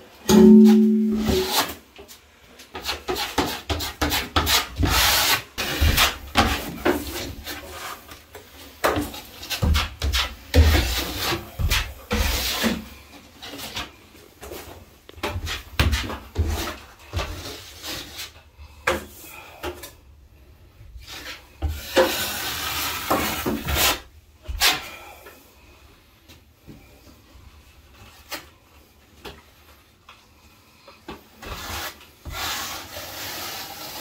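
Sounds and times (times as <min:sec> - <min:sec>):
drywall blade scraping compound: 0:00.3 - 0:02.0, 0:02.6 - 0:20.0, 0:20.8 - 0:25.7, 0:31.1 - 0:34.0.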